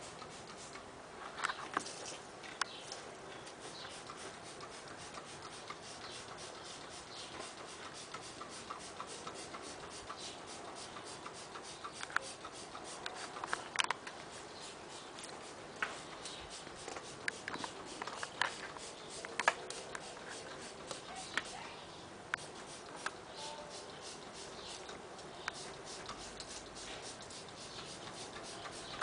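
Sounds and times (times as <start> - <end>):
spray bottle spritzes: 0.0 - 0.8, 3.6 - 13.6, 14.3 - 21.6, 22.4 - 24.9, 25.5 - 29.0
spray bottle trigger clicks: 0.0 - 0.8, 3.7 - 13.7, 14.3 - 21.5, 22.4 - 29.0.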